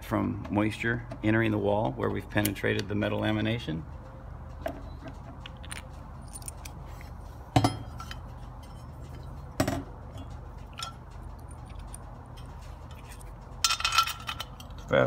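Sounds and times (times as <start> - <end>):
metal hardware clinking: 4.0 - 15.0
sharp metal knocks: 7.5 - 8.2, 9.5 - 12.6.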